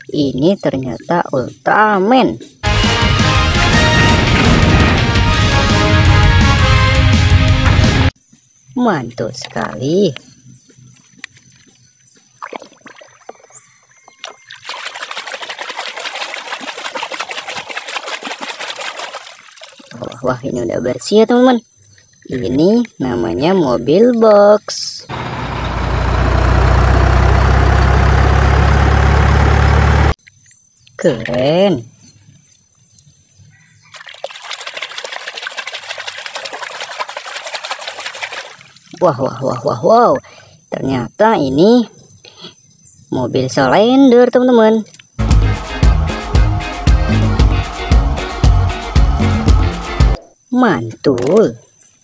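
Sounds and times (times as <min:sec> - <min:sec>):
rapid splashing in water: 0:12.4 - 0:20.2, 0:33.9 - 0:39.0.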